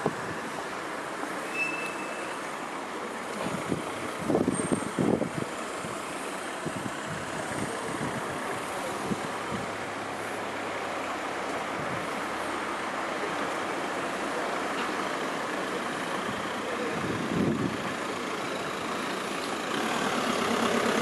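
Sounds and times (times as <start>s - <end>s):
wind gusts buffeting microphone: 3.5s - 6.0s, 17.0s - 17.9s.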